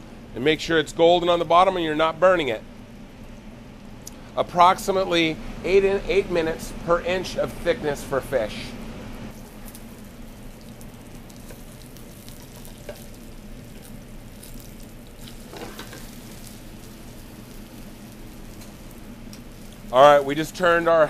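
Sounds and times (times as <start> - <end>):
fish sizzling in butter: 9.3 - 21.0
spatula clicks and scrapes: 10.7 - 17.0.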